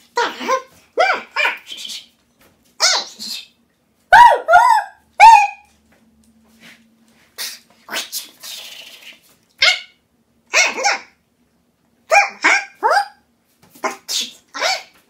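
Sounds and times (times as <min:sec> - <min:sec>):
dog barking: 0:04.1 - 0:05.7, 0:10.5 - 0:11.2, 0:12.1 - 0:13.2.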